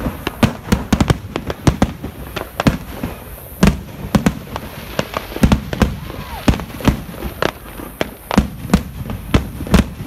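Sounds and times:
fireworks bursting: 0.0s - 10.0s.

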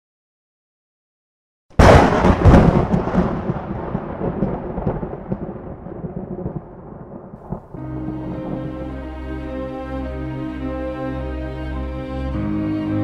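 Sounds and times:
thunderclap: 1.8s - 8.8s.

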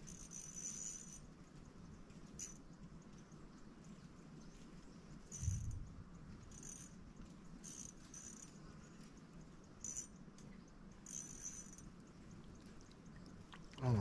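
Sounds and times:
high-pitched insect chirps: 0.0s - 1.3s, 2.3s - 2.7s, 5.3s - 12.4s.

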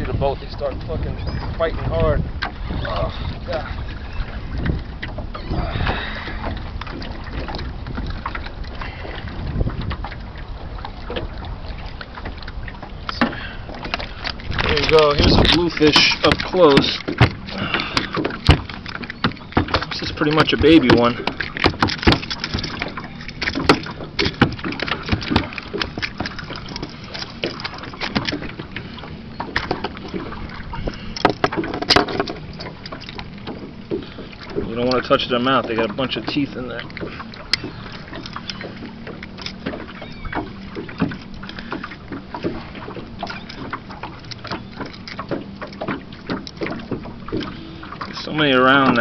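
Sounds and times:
wind rumbling on microphone: 0.0s - 49.0s
light knocks and clicks: 13.1s - 28.6s.

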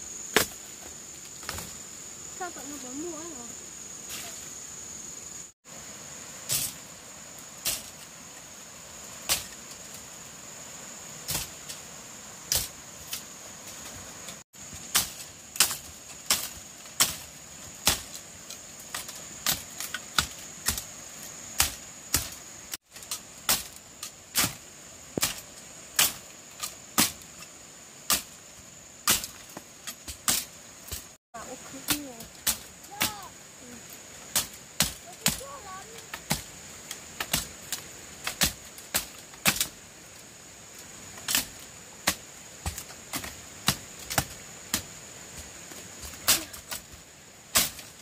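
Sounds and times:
high-pitched insect drone: 0.0s - 30.1s.

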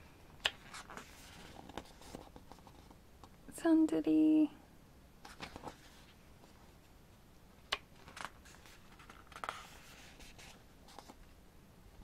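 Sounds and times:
pages turning: 0.4s - 3.0s, 5.2s - 6.6s, 7.7s - 11.3s.

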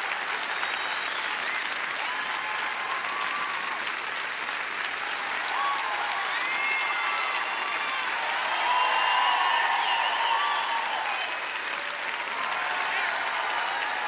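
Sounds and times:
audience applauding: 0.0s - 14.0s
crowd cheering: 0.0s - 14.0s.

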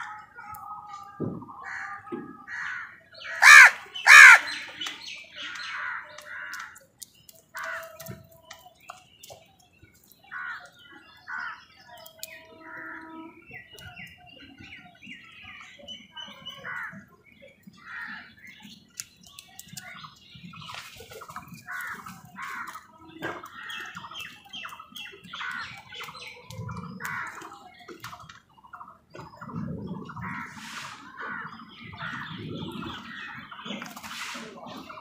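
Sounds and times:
crows squawking: 1.6s - 6.8s, 21.6s - 24.1s, 27.0s - 27.5s.

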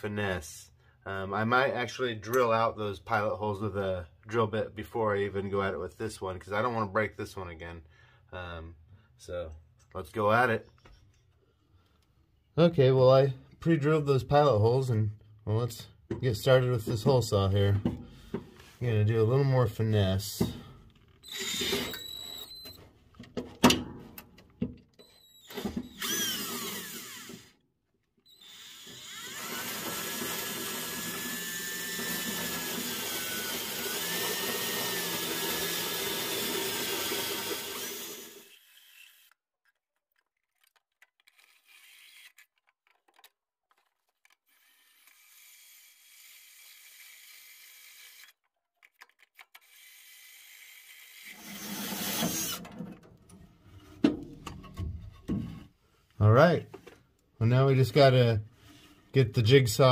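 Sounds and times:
power drill cutting steel: 21.2s - 22.8s, 25.0s - 27.6s, 28.3s - 39.4s, 44.5s - 48.4s, 49.6s - 52.6s.

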